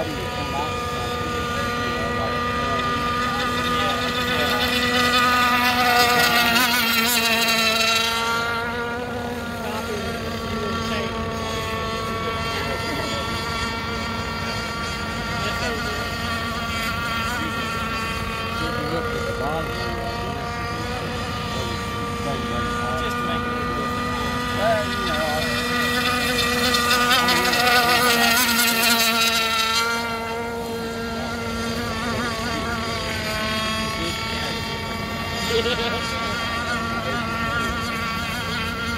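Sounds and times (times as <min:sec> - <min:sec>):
model boat engines whining: 0:00.0 - 0:38.9.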